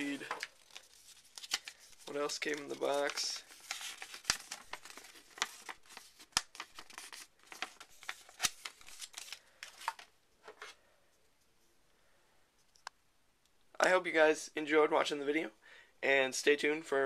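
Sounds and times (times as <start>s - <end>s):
paper rustling and crinkling: 0.0s - 10.7s.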